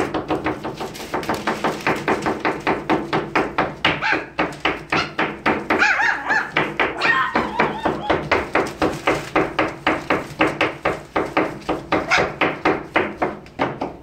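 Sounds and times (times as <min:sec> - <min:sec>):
puppies whining: 0:05.8 - 0:08.4.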